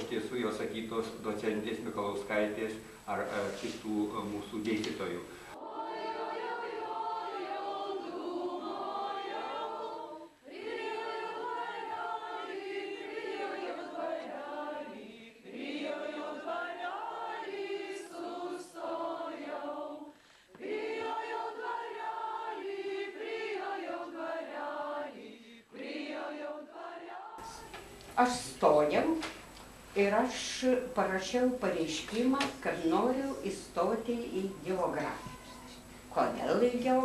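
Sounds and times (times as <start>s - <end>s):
choir singing: 0.0s - 2.4s, 5.0s - 27.8s.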